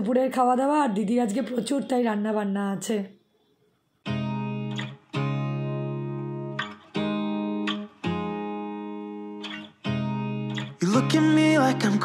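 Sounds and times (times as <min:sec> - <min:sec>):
guitar strumming chords: 0:04.0 - 0:12.0.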